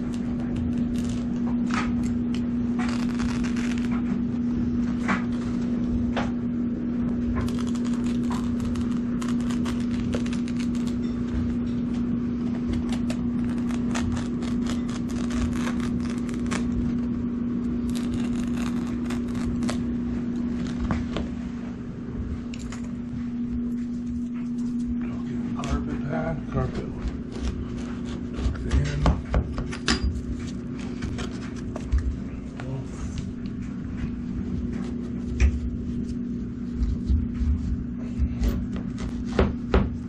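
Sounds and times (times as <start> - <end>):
carpet strip scraping: 0.0 - 2.2, 2.8 - 4.2, 7.4 - 11.1, 12.6 - 17.0, 17.9 - 21.2, 27.2 - 28.8
low hum: 0.0 - 40.0.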